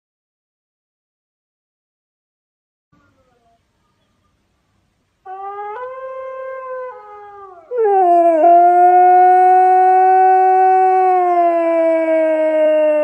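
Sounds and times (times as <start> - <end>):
husky howling: 5.3 - 13.0.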